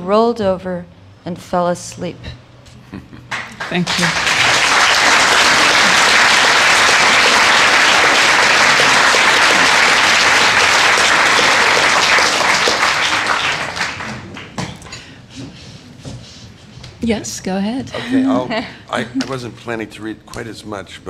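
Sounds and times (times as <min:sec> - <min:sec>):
audience applauding: 0:03.3 - 0:14.6.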